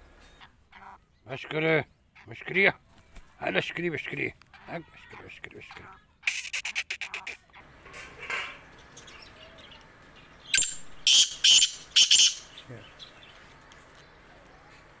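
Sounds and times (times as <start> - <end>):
bird harsh calls: 8.5 - 13.5.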